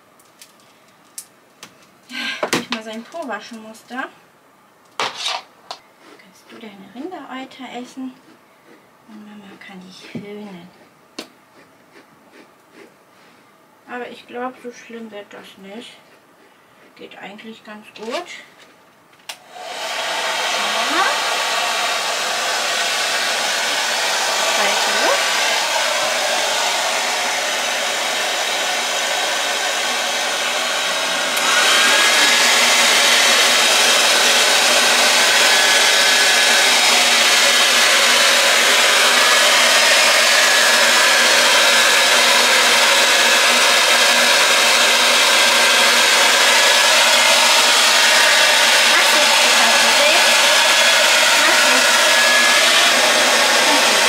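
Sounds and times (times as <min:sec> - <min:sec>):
hair dryer running: 0:19.3 - 0:54.0.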